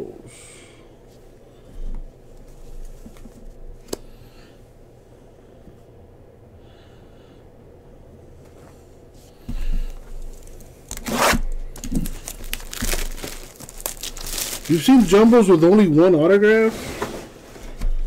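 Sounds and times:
packaging rustling and tearing: 0:09.9 - 0:15.7.

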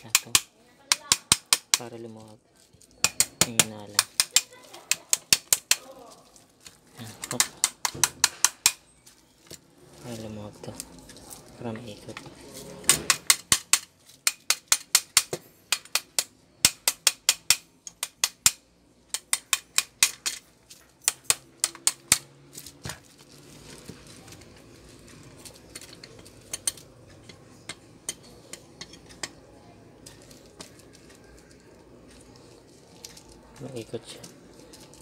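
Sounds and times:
hammer tapping on metal motor: 0:00.0 - 0:01.9, 0:07.2 - 0:08.8, 0:12.9 - 0:20.4.

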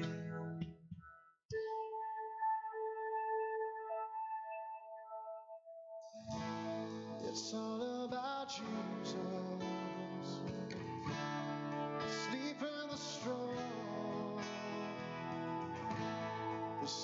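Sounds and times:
song with strummed acoustic guitar: 0:00.0 - 0:00.6, 0:06.1 - 0:17.0.

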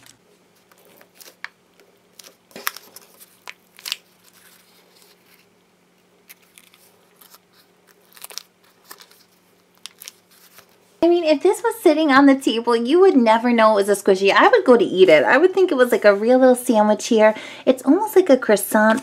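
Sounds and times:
paper liner crinkling: 0:00.0 - 0:05.6, 0:06.2 - 0:10.9.

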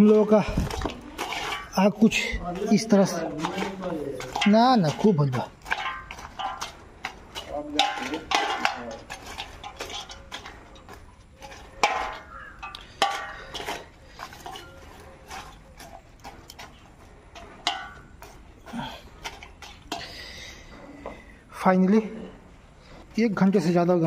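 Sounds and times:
wire grill rack clinking on metal pan: 0:01.2 - 0:13.8, 0:17.4 - 0:18.1.

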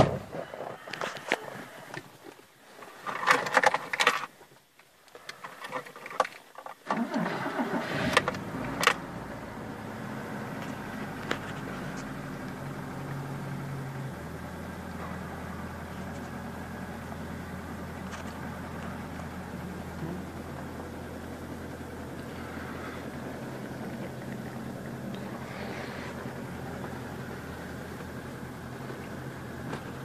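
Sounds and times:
starter motor cranking: 0:06.9 - 0:09.1
car engine idling: 0:07.0 - 0:30.0.

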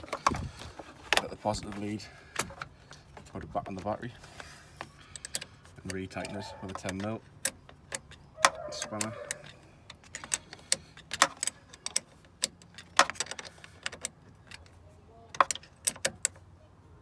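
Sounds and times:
metal spanner clicking on clamp: 0:05.1 - 0:14.6.

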